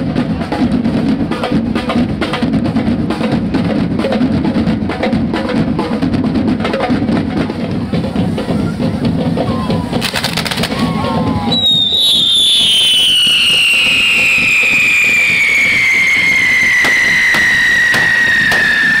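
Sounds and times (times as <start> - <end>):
band drumming: 0.0 - 19.0
firework whistle falling in pitch: 11.4 - 19.0.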